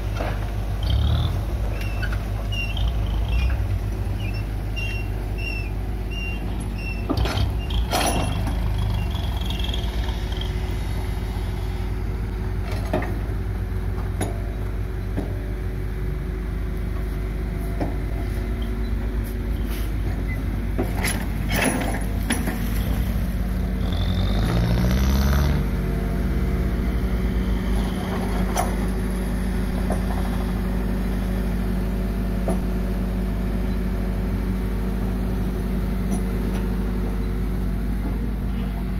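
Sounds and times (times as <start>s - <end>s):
diesel engine running: 0.0s - 38.9s
sharp knocks and clanks: 20.1s - 23.0s.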